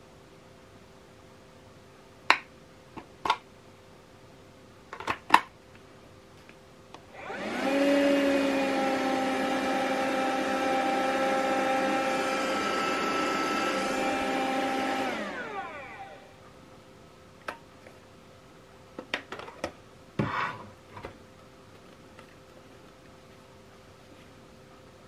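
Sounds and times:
window vacuum motor whining: 7.2s - 16.3s.

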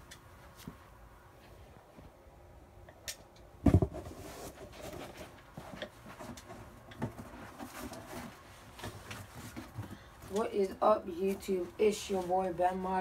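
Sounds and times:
loud thump: 3.6s - 4.0s
cardboard box being handled: 3.6s - 10.4s.

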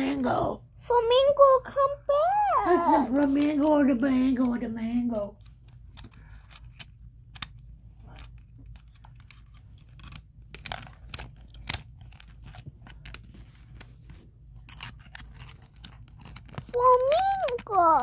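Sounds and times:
low steady hum: 0.0s - 18.0s
small toys clicking and rustling: 0.0s - 18.0s.

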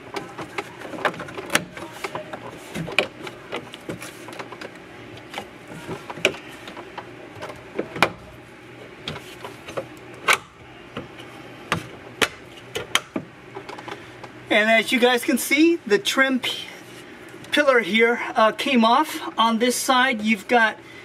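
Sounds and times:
plastic creaking and rubbing: 0.0s - 8.1s.

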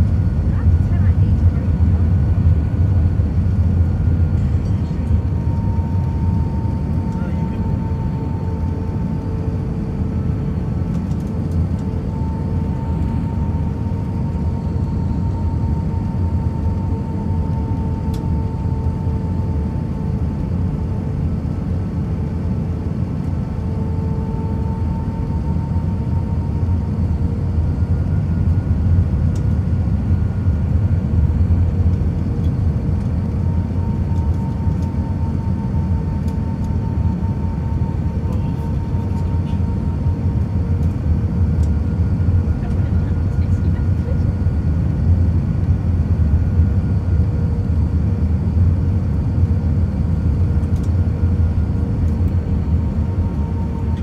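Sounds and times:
steady hum: 0.0s - 20.4s, 44.4s - 54.0s
deep rumble of airflow and engines: 0.0s - 54.0s.

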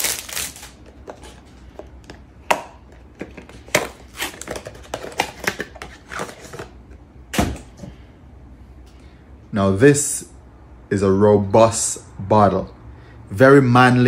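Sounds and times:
cellophane wrap tearing: 0.0s - 0.8s.

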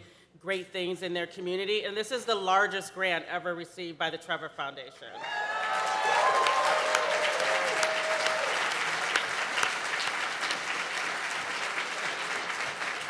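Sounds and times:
person cheering: 5.2s - 8.6s
audience applauding: 5.2s - 13.0s.

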